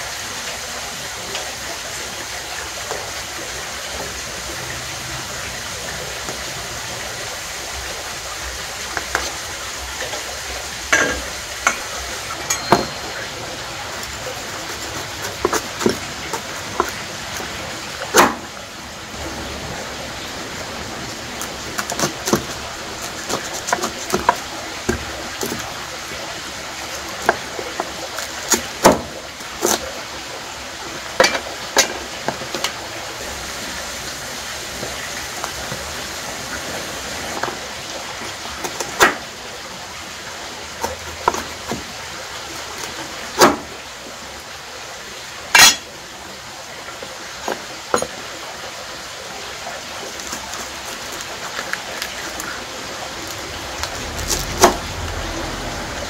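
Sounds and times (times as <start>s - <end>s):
steady hiss: 0.0s - 56.0s
utensils and cookware clacking: 8.9s - 18.5s, 31.2s - 32.8s, 45.5s - 46.0s, 47.4s - 48.3s.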